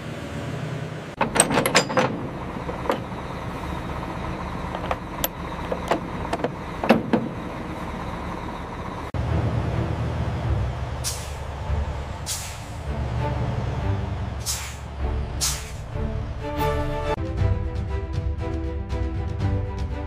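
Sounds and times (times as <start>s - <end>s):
vehicle engine running: 0.0s - 17.2s
metallic clanks and knocks: 1.2s - 3.4s, 4.6s - 7.5s.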